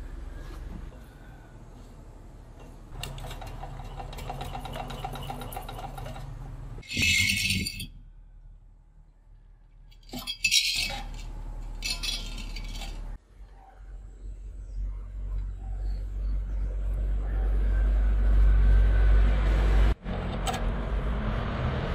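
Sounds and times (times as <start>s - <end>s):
metal scraping on concrete: 2.9s - 7.9s, 10.0s - 13.2s
metal parts rattling on concrete: 2.9s - 8.0s, 9.9s - 13.2s.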